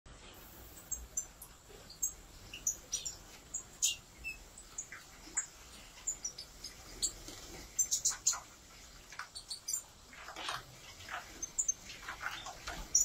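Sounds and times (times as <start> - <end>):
birds chirping: 0.1 - 13.0.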